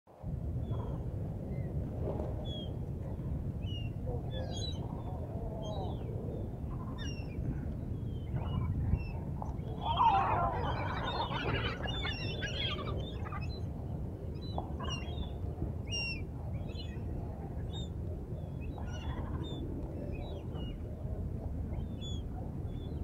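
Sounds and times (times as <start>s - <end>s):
gulls squawking: 9.8s - 13.5s.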